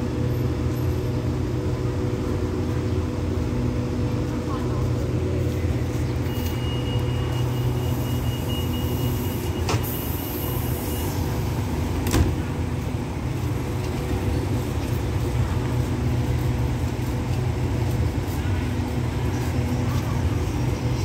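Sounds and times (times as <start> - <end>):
diesel train idling: 0.0 - 21.0.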